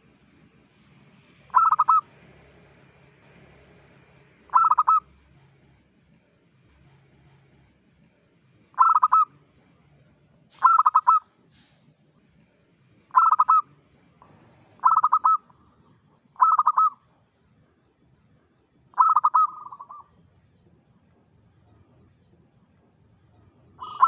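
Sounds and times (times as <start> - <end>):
dove cooing: 1.5 - 2.2, 4.5 - 5.6, 8.8 - 9.4, 10.5 - 11.3, 13.1 - 13.7, 14.7 - 17.1, 18.9 - 20.2.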